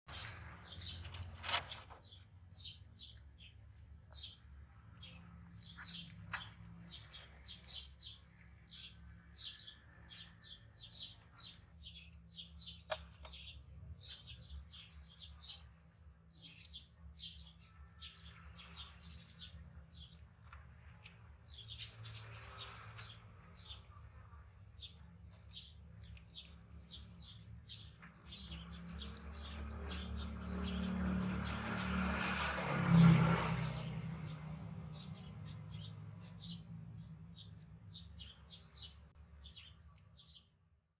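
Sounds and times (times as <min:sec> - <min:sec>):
small birds chirping: 0:00.1 - 0:40.8
rustling noise: 0:00.9 - 0:02.2.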